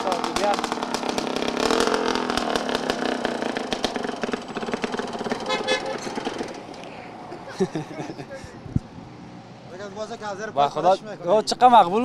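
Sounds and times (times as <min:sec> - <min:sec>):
motorcycle engine running: 0:00.0 - 0:06.7.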